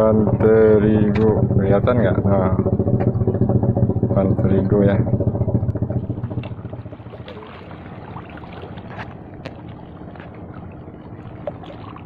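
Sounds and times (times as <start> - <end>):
wind on microphone: 0.0 - 9.3
water lapping over stone: 5.6 - 12.0.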